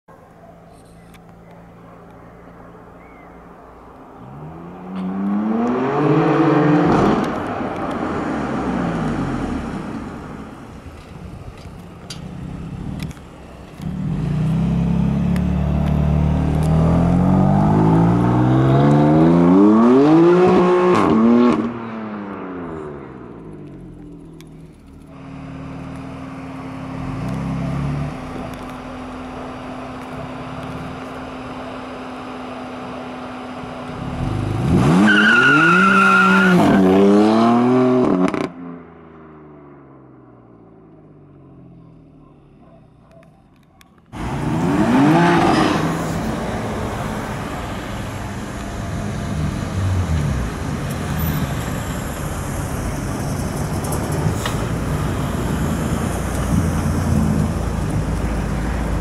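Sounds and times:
engines in street traffic: 0:00.0 - 0:59.0
car engine revving: 0:04.2 - 0:10.8, 0:12.9 - 0:38.8, 0:44.1 - 0:59.0
tyre squeal: 0:35.0 - 0:36.9.

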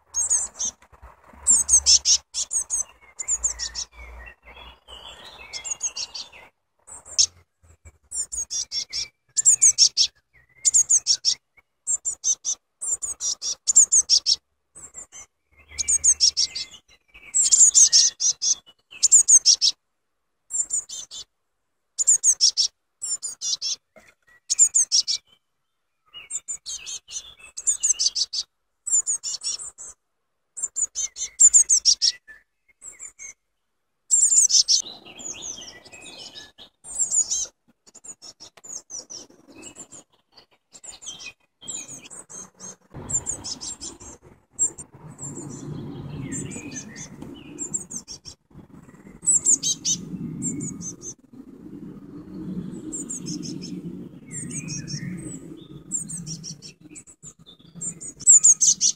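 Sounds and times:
chicks chirping: 0:00.1 - 0:16.8, 0:40.8 - 0:51.2, 0:57.7 - 0:58.9.

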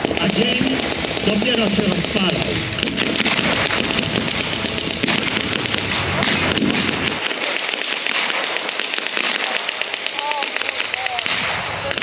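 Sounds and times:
low rumble: 0:00.0 - 0:07.2
rapid blank gunfire cracks: 0:00.0 - 0:12.0.

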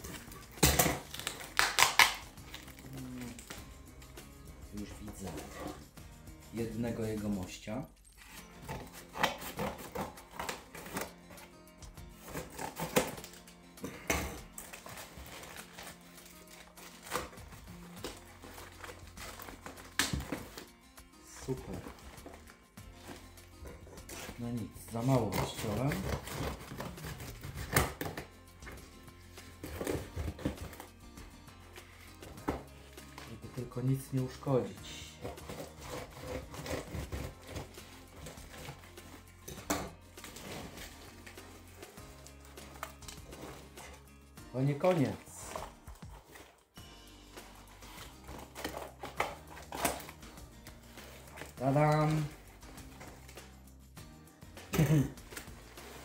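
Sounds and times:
packing tape ripping: 0:00.0 - 0:03.7, 0:08.2 - 0:20.7, 0:25.2 - 0:28.3, 0:35.2 - 0:44.0, 0:47.4 - 0:53.5
background music with low notes: 0:00.0 - 0:56.0
sharp cardboard crack: 0:00.6 - 0:02.4.

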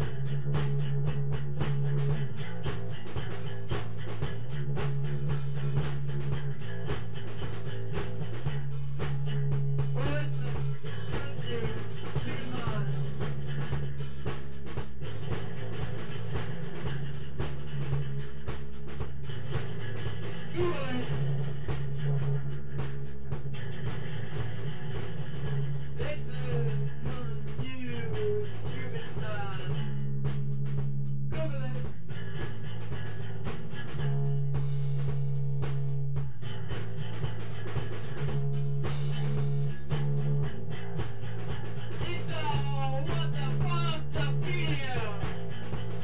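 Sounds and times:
bass guitar low notes: 0:00.0 - 0:46.0
drumming: 0:00.0 - 0:46.0.

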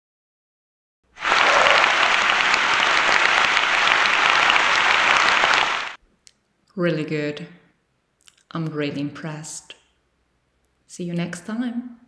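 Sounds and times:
crowd applause: 0:01.2 - 0:06.0.

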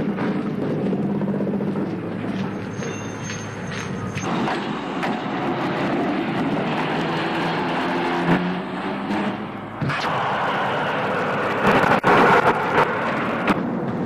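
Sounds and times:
train wheels rumbling on rails: 0:00.0 - 0:14.0
high squeal: 0:02.3 - 0:04.9, 0:09.9 - 0:12.3.

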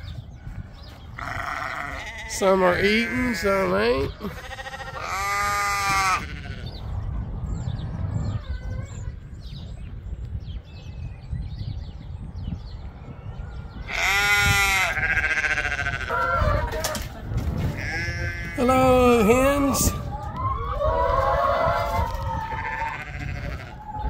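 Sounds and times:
wind rumble on microphone: 0:00.0 - 0:24.0
sheep bleating: 0:01.2 - 0:06.8, 0:13.9 - 0:16.4, 0:17.8 - 0:19.7, 0:22.5 - 0:23.8.

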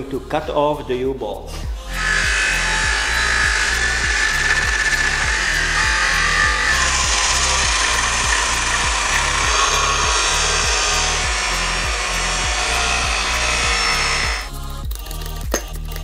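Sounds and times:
background music with steady beat: 0:00.0 - 0:16.0
angle grinder cutting steel: 0:01.9 - 0:14.5.

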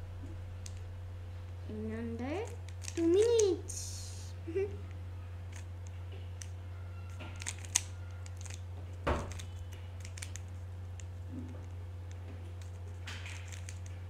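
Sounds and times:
low hum: 0:00.0 - 0:14.0
puzzle cube clicking: 0:07.4 - 0:08.6.

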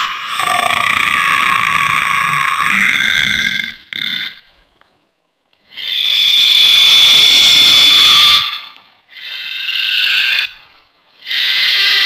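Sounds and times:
cartoon monster snarls: 0:11.2 - 0:12.0.

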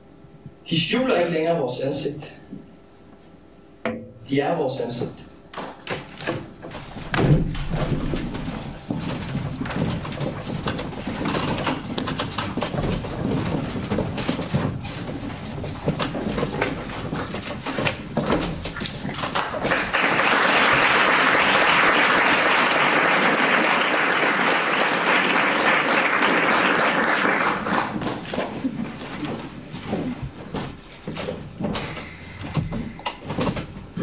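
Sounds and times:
knocks and shuffling: 0:05.6 - 0:19.7, 0:27.3 - 0:34.0
audience applause: 0:19.4 - 0:28.4.

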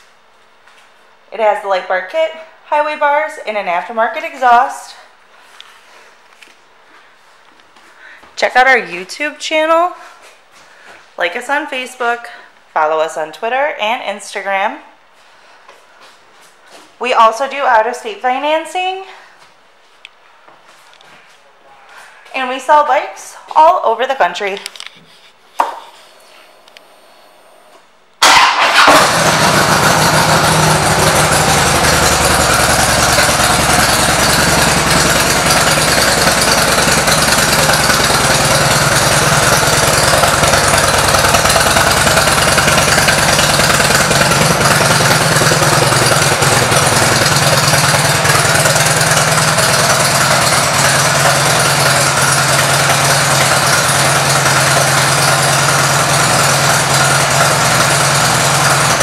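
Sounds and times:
motorcycle engine idling: 0:28.2 - 0:59.0.

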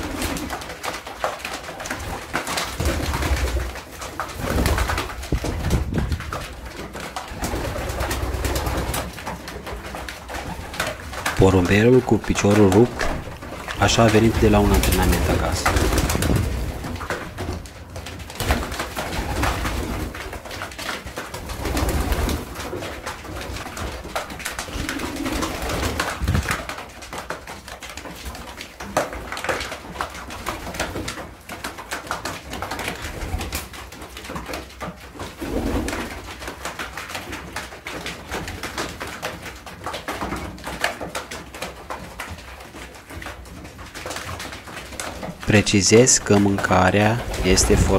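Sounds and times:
birds pecking seed on wooden feeder: 0:00.0 - 0:47.9
pigeons cooing: 0:23.7 - 0:26.6.

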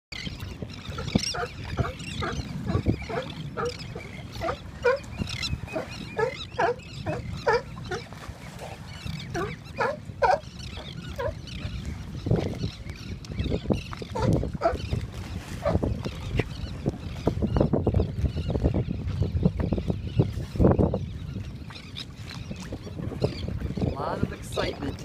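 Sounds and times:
sea lions barking: 0:00.9 - 0:11.8, 0:14.1 - 0:14.9.

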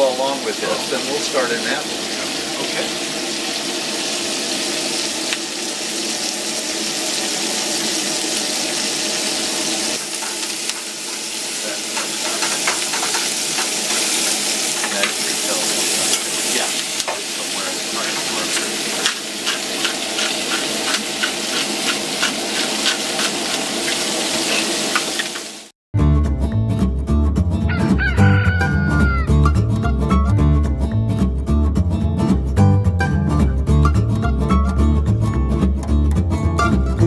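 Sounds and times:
crackles and pops of frying: 0:00.0 - 0:25.7
meat and vegetables sizzling in pans: 0:00.0 - 0:25.7
spatula scraping vegetables: 0:10.0 - 0:25.5.

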